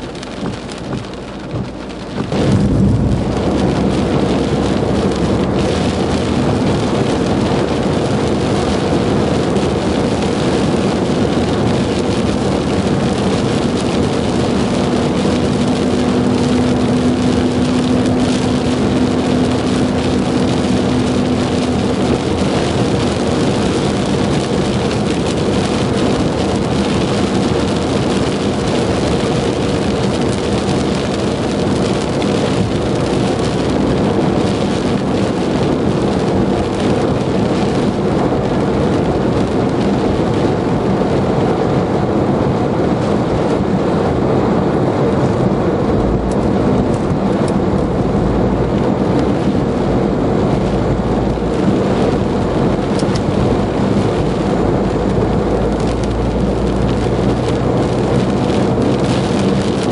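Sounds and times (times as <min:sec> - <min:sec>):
low hum: 0:00.0 - 0:07.4
car engine and road hum: 0:00.0 - 0:59.9
rain on car: 0:00.0 - 0:59.9.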